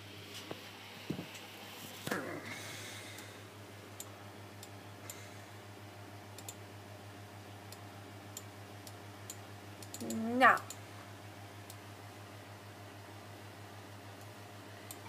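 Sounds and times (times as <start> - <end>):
steady low hum: 0.0 - 15.0
computer mouse clicks: 6.4 - 6.6, 7.7 - 10.8.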